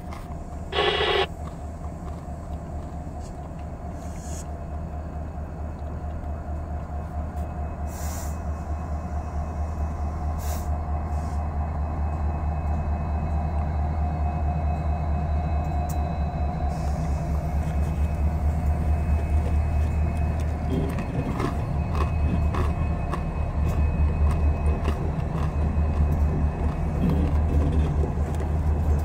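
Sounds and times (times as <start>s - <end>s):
diesel locomotive engine rumble: 0.0s - 29.0s
loud burst of noise: 0.8s - 1.3s.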